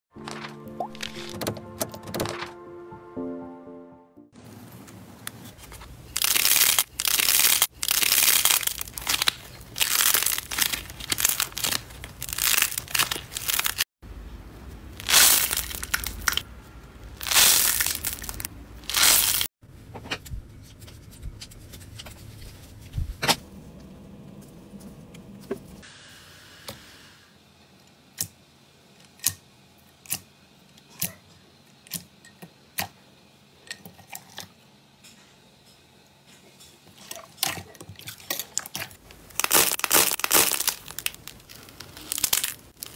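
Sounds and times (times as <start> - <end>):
slime crackling and tearing: 6.1 - 13.8, 15.0 - 16.4, 17.2 - 19.5, 39.3 - 42.9.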